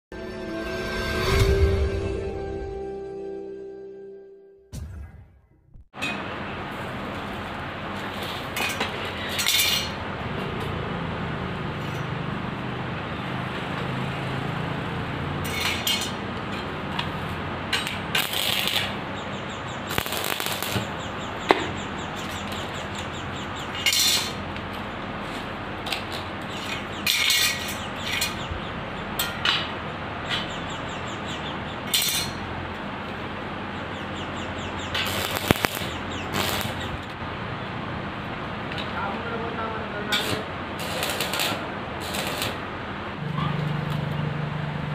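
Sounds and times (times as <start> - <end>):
arc welding crackling sizzle: 6.6 - 10.0, 15.5 - 28.3, 34.8 - 37.2, 40.0 - 42.8
sharp metallic clicks: 34.8 - 37.2.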